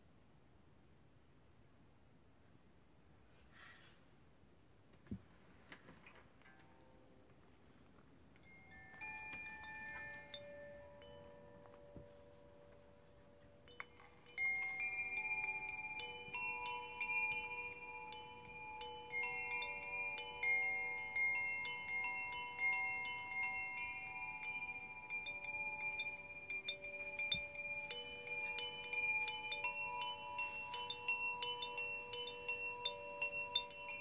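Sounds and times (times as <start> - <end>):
metallic chimes ringing: 8.4 - 34.0.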